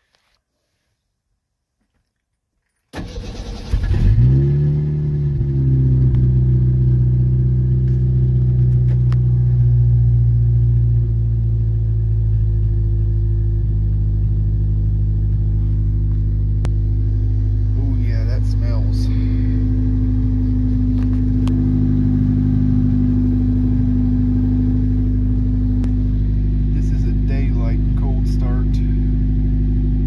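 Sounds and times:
starter motor cranking: 2.9s - 4.3s
pickup engine idling: 3.0s - 30.0s.

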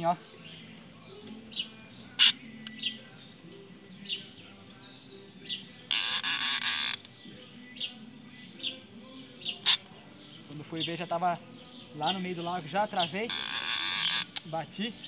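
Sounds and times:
birds chirping: 0.0s - 15.0s
fishing reel drag buzzing: 13.3s - 14.3s.

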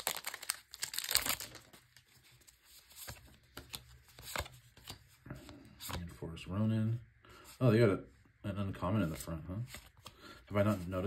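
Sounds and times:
foil wrapper crinkling: 0.0s - 2.1s.

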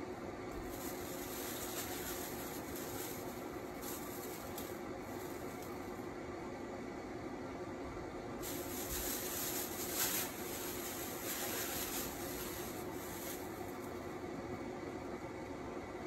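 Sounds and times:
steady low hum: 0.0s - 16.0s
herb leaves being torn: 0.6s - 5.8s
plastic bag rustling: 0.6s - 5.8s, 8.4s - 14.0s.

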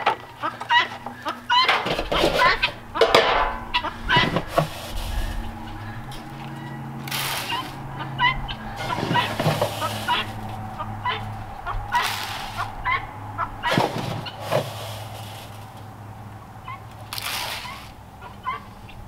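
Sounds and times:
feed pouring into plastic feeders: 0.0s - 6.4s, 7.0s - 7.8s, 8.6s - 10.6s, 11.9s - 12.7s, 13.6s - 15.8s, 17.1s - 18.0s
birds calling: 0.0s - 19.0s
metal scoop scraping in metal can: 0.9s - 7.8s, 8.6s - 10.6s, 11.9s - 12.7s, 13.6s - 15.8s, 17.1s - 17.9s.

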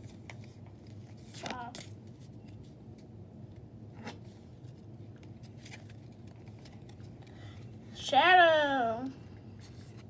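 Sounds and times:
trading cards rustling: 0.0s - 3.1s, 4.6s - 7.7s.

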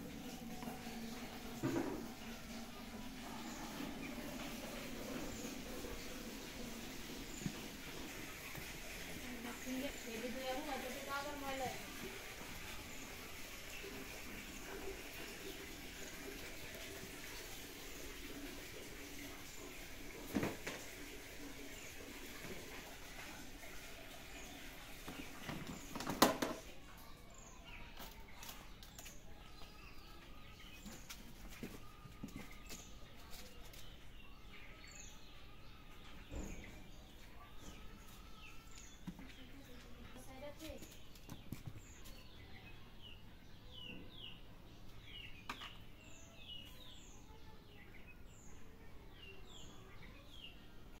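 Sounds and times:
small birds chirping: 0.0s - 51.0s
knocks and rattles: 25.4s - 26.7s.

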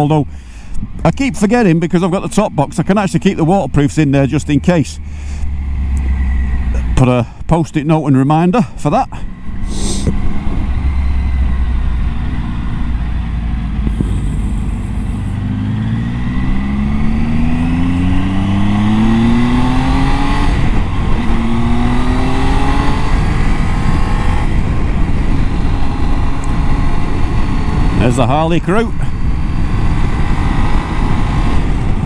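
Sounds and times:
motorcycle engine accelerating: 1.0s - 7.1s, 8.9s - 32.0s
wind rumble on microphone: 9.2s - 32.0s.

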